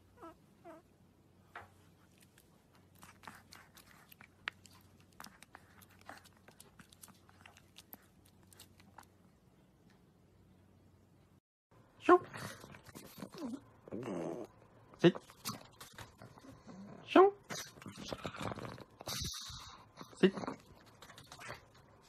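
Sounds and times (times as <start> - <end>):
puppy chewing wet clicks: 2.0 - 9.2.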